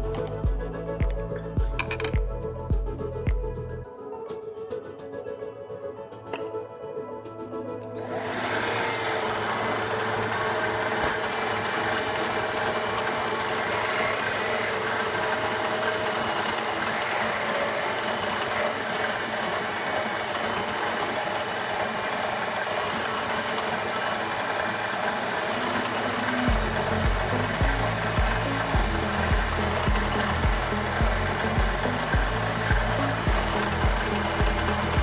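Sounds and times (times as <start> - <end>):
faint machine hum: 7.9 - 35.0
drill cutting into steel: 8.0 - 35.0.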